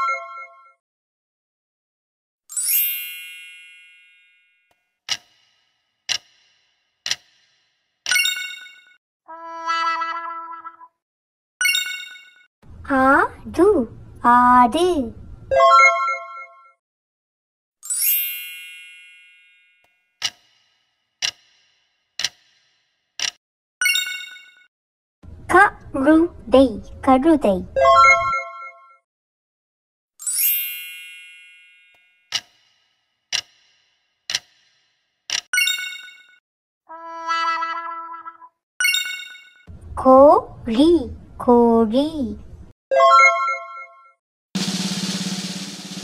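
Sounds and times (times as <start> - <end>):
bright chime: 2.5 - 4.5, 17.8 - 19.8, 30.2 - 32.0
clock-like ticks: 5.1 - 8.3, 20.2 - 23.4, 32.3 - 35.5.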